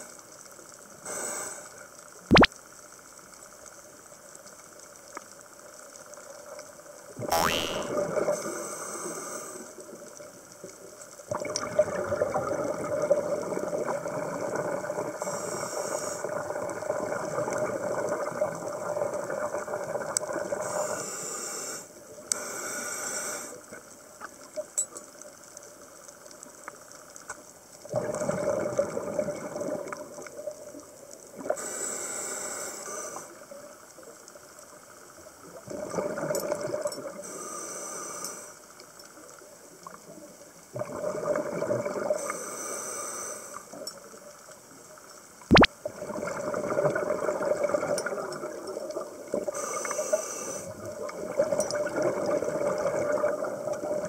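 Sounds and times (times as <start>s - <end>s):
bubbling exhalations underwater: 7.2s - 8.3s, 45.5s - 48.0s
regulator hissing inhalations: 49.6s - 50.7s.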